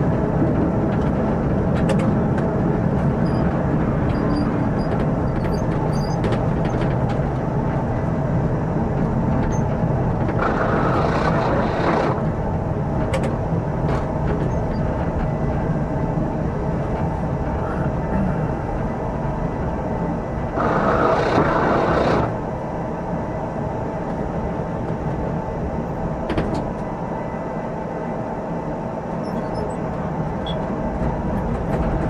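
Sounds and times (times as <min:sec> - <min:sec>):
tram wheels rumbling: 0:00.0 - 0:32.0.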